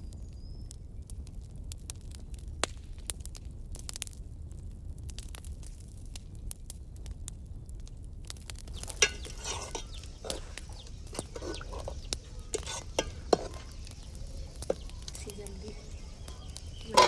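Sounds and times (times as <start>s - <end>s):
ladle scraping metal pot: 8.7s - 15.2s, 16.8s - 17.0s
chickens clucking: 8.8s - 17.0s.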